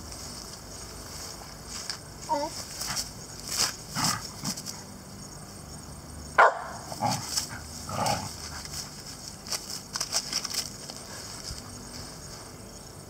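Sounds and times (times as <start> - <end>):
dog barking: 6.4 - 6.9.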